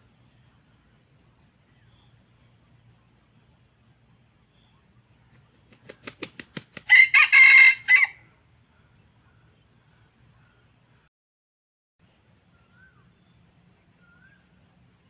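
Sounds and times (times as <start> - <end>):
rooster wings flapping: 5.2 - 7.4
rooster crowing: 6.8 - 8.3.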